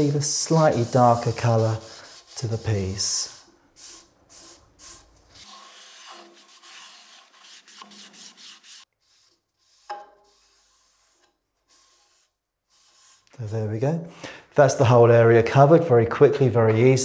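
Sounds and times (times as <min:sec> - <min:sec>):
cloth pad rubbing wood: 0:00.0 - 0:13.4.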